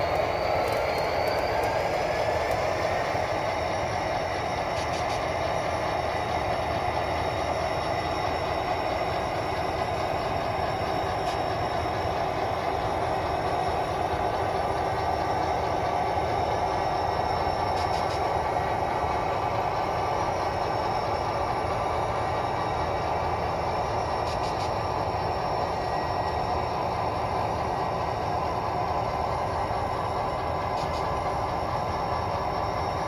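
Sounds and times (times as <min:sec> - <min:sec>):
model train mechanical drone: 0:00.0 - 0:33.0.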